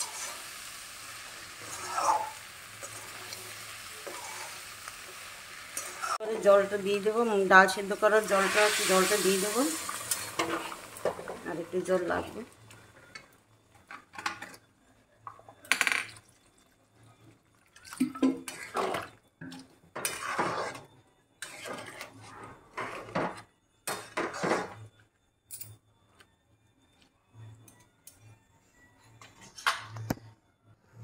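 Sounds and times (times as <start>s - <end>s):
metal spatula scraping a pan: 0.0s - 0.6s, 1.3s - 6.6s, 8.3s - 11.3s, 18.4s - 24.8s.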